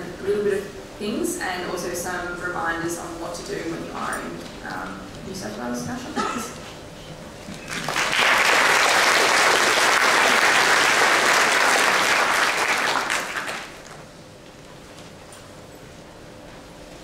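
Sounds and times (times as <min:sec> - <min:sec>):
audience applauding: 0:07.6 - 0:14.0.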